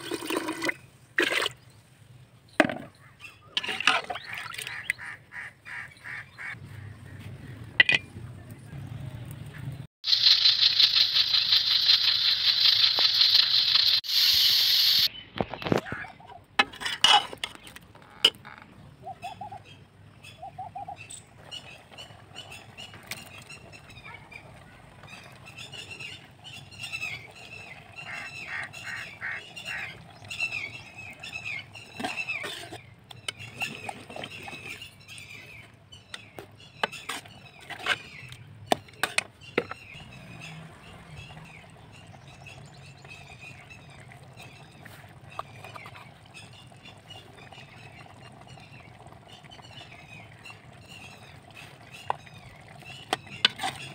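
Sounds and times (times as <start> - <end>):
birds chirping: 1.6 - 16.5, 17.5 - 53.9
pressure cooker hissing steam: 10.1 - 15.1.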